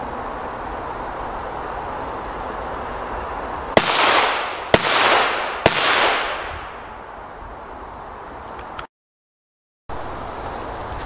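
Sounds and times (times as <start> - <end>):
firecrackers banging: 3.7 - 7.1.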